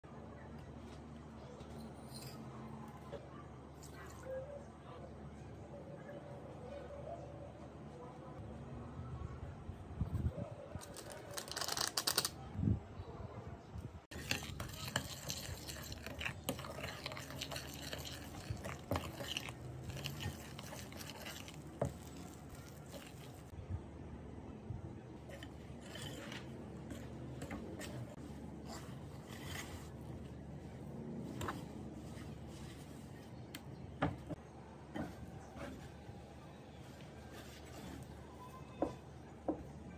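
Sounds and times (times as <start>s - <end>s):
utensil scraping glass bowl: 14.1s - 23.5s, 25.3s - 30.1s.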